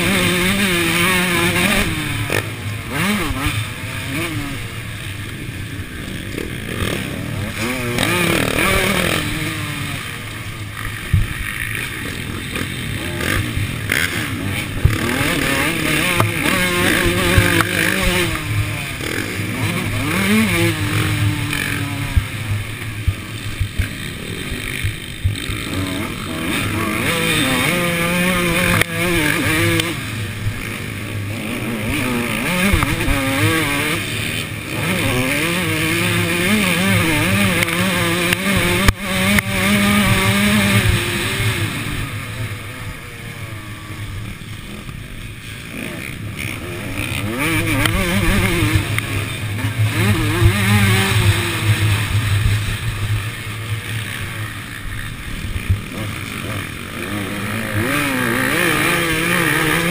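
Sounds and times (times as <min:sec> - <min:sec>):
motocross engine revving: 0:00.0 - 0:59.9.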